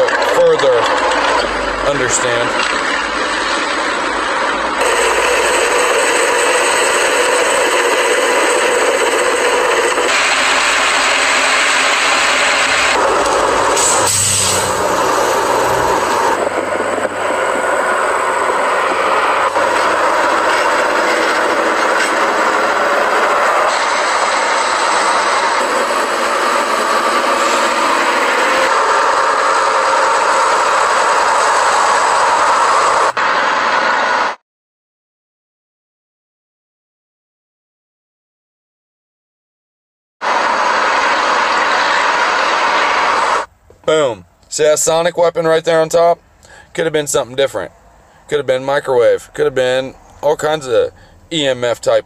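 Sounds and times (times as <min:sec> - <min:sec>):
helicopter turbine and rotor noise: 0:00.0 - 0:33.1
military trucks driving: 0:00.0 - 0:34.4, 0:40.2 - 0:52.0.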